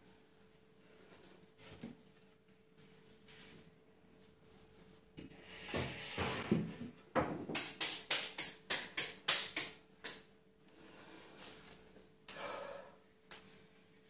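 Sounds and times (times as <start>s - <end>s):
quick hand claps: 7.6s - 10.3s.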